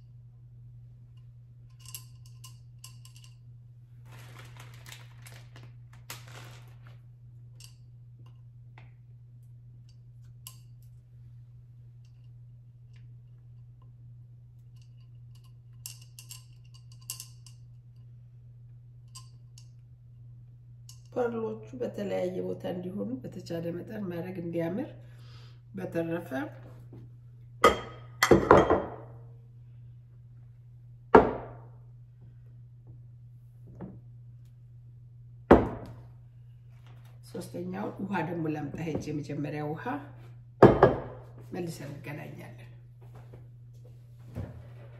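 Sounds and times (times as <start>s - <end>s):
steady low hum: 0.0s - 44.9s
glass vase knocking on wooden table: 31.2s - 31.7s, 35.5s - 36.0s, 40.6s - 41.2s.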